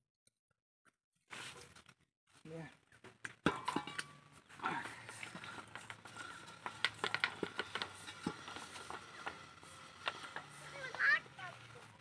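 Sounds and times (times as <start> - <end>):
metal clinks and knocks on pipe: 3.4 - 4.3.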